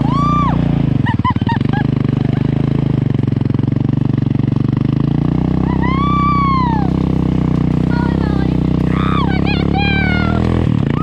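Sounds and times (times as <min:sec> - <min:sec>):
person whooping: 0:00.0 - 0:00.7, 0:05.6 - 0:07.0
small engine running under load: 0:00.0 - 0:11.0
person squealing: 0:05.6 - 0:06.9.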